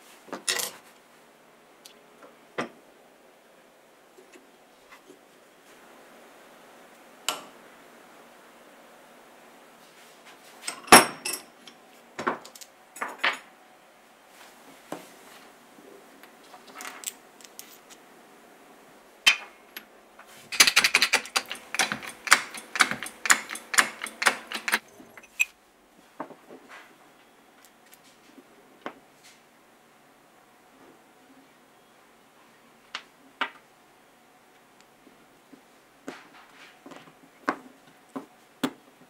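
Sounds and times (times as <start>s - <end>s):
metal clinks and taps: 20.7s - 25.5s.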